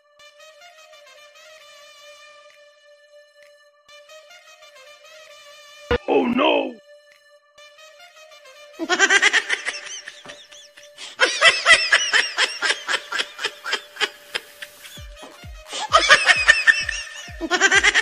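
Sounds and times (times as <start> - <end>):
background music: 0.0 - 18.0
high-pitched comic laughter: 8.8 - 18.0
low even beat: 14.5 - 18.0.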